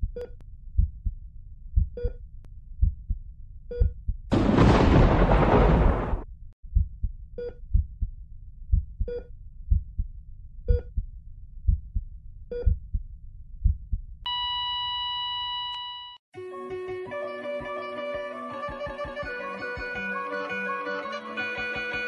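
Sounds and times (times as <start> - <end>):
heartbeat double thumps: 0.0 - 2.2, 2.8 - 14.2
heart monitor beeps: 1.8 - 2.2, 3.7 - 4.0, 9.0 - 9.3, 10.7 - 11.0, 12.5 - 12.8, 14.3 - 16.2
continuous flatline monitor tone: 14.3 - 16.2.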